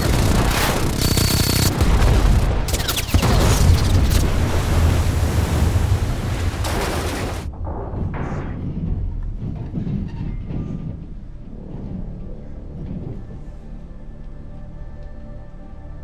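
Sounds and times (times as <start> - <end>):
loud explosions and rumbling blasts: 0.0 - 11.0.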